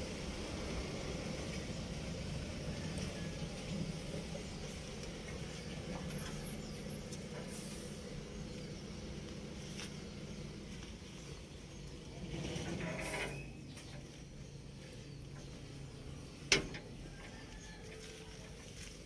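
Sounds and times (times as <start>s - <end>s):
diesel engine idling: 0.0s - 12.3s, 13.0s - 19.0s.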